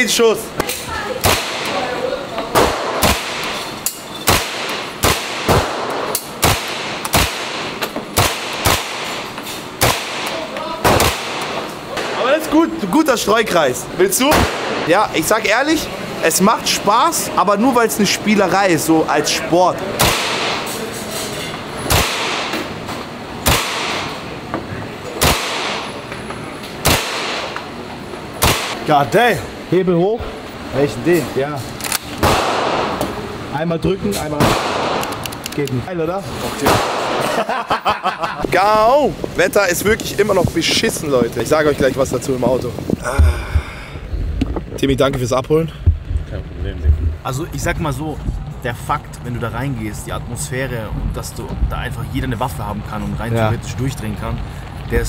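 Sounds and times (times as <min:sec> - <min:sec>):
gunshots echoing indoors: 0:01.2 - 0:01.9, 0:02.5 - 0:03.7, 0:04.3 - 0:12.3, 0:14.3 - 0:14.9, 0:20.0 - 0:20.8, 0:21.8 - 0:22.8, 0:23.4 - 0:24.3, 0:25.2 - 0:26.0, 0:26.8 - 0:27.6, 0:28.4 - 0:28.8, 0:32.2 - 0:33.2, 0:34.4 - 0:35.2
submachine gun single shots: 0:02.6 - 0:03.6, 0:04.3 - 0:09.2, 0:25.2 - 0:25.9, 0:26.8 - 0:27.6, 0:31.8 - 0:33.0, 0:34.4 - 0:35.2.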